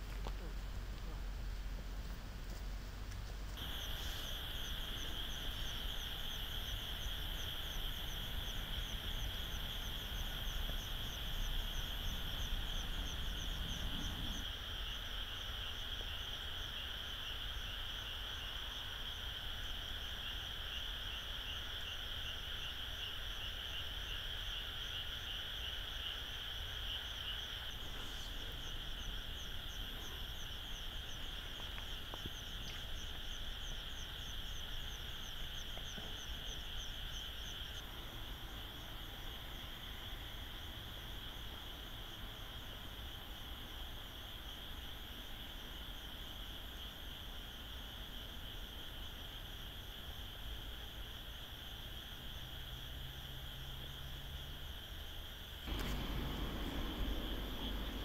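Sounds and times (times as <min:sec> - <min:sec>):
insects and frogs calling: 0:00.0 - 0:58.0
low rumble: 0:55.7 - 0:58.0.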